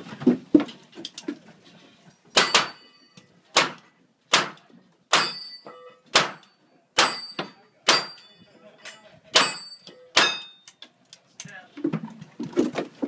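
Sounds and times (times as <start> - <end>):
steel targets ringing: 2.4 - 3.3, 4.4 - 10.7.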